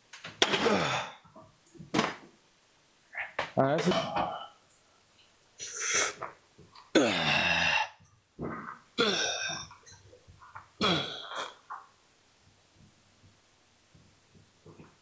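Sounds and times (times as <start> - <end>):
man grunting with effort: 0.6 - 1.2.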